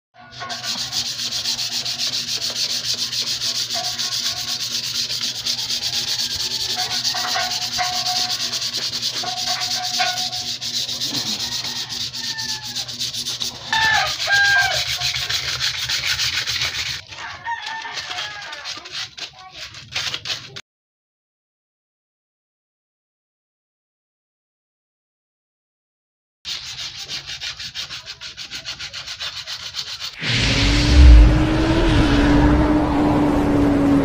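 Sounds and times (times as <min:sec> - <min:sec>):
polishing pad rubbing metal: 0:00.2 - 0:20.6, 0:26.5 - 0:31.9.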